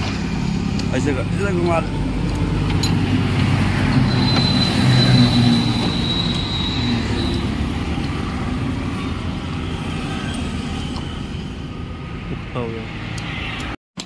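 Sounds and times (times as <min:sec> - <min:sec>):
motor traffic rumble: 0:00.0 - 0:13.8
thin high squeal: 0:03.9 - 0:07.6.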